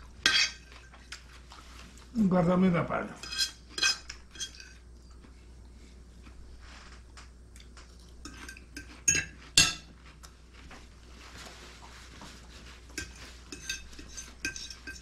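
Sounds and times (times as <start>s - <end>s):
cutlery clinking on plates: 8.3s - 9.9s, 13.0s - 15.0s.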